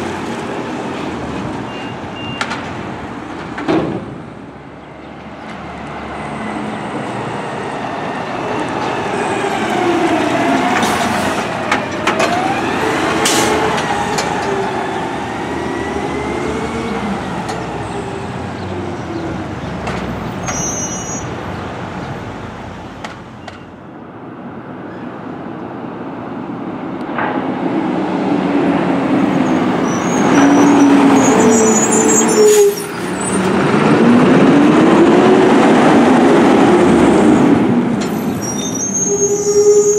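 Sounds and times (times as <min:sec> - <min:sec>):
garbage trucks driving past: 0:00.0 - 0:23.6.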